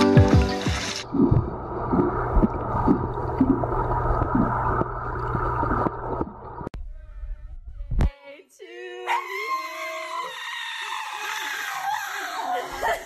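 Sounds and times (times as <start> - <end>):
background music: 0.0 - 1.2.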